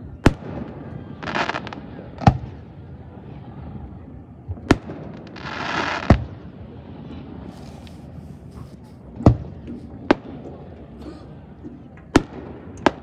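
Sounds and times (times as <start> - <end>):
hissing crackle of fireworks: 0.0 - 3.6, 4.2 - 10.8
fireworks bursting in booms: 0.2 - 2.6, 9.0 - 10.7, 12.1 - 13.0.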